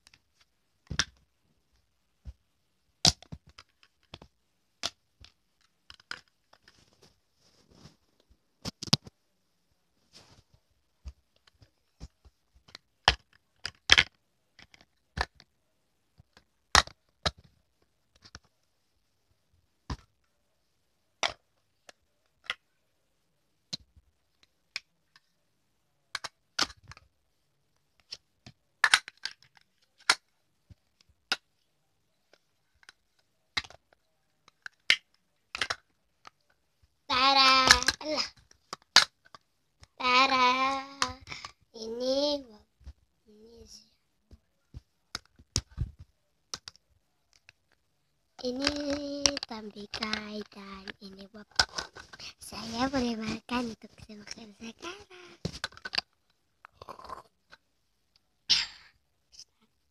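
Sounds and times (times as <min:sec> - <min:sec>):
plastic toys clicking together: 0:12.7 - 0:15.5, 0:26.1 - 0:27.1, 0:28.8 - 0:30.3, 0:32.8 - 0:36.5, 0:37.4 - 0:39.4, 0:48.4 - 0:52.1, 0:55.6 - 0:57.6.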